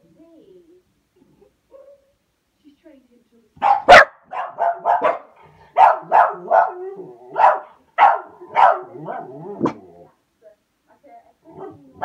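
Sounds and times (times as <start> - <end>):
dog barking: 1.7 - 2.2, 3.6 - 9.8, 11.5 - 11.8.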